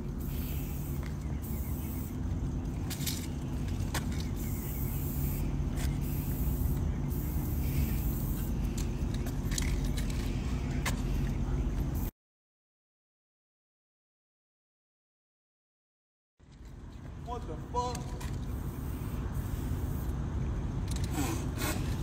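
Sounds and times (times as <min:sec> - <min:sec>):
steady low hum: 0:00.0 - 0:12.1, 0:16.4 - 0:22.0
spray-paint can hissing: 0:00.2 - 0:02.2, 0:04.2 - 0:08.5, 0:18.6 - 0:20.2.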